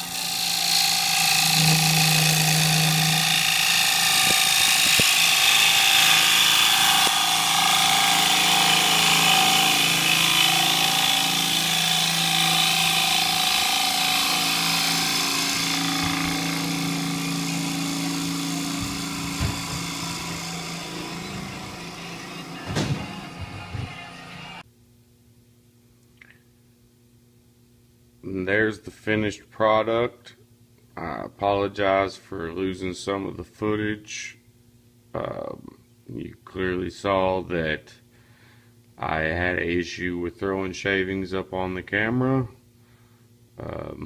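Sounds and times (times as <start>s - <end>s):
lathe tool hissing on wood: 0.0s - 22.6s
lathe motor hum: 0.0s - 24.6s.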